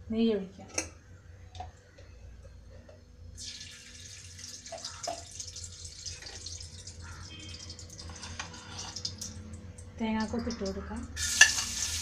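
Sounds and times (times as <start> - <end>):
ghee sizzling in a pan: 11.2 - 12.0.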